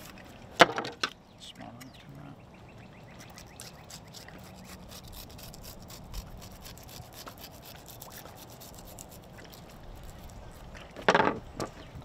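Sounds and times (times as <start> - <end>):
knife cutting fish skin: 3.3 - 10.6.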